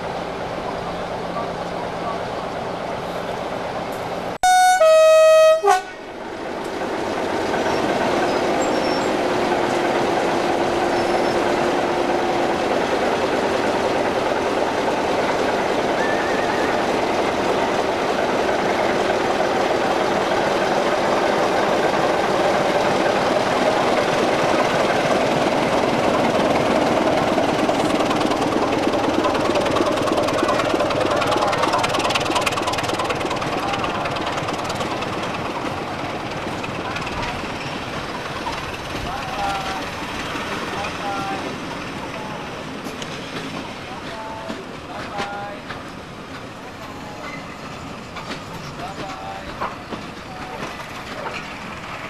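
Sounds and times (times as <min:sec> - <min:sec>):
diesel locomotive engine running: 0:00.0 - 0:52.0
locomotive two-tone horn: 0:04.4 - 0:06.0.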